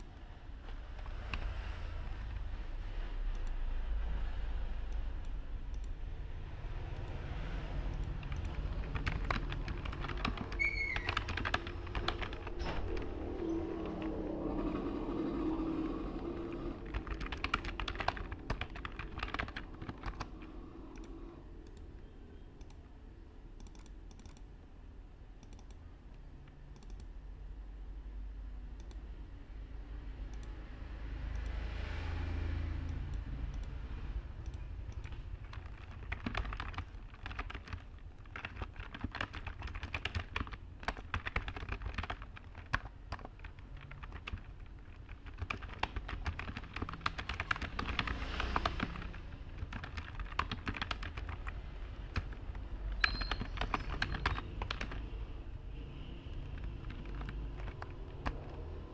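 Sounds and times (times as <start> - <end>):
low background rumble: 0.0 - 22.1
typing on computer keyboard: 4.9 - 6.0, 6.9 - 14.9, 15.7 - 22.0, 23.6 - 24.5, 25.4 - 25.8, 26.7 - 27.2, 32.8 - 33.8, 34.4 - 55.2, 56.3 - 58.9.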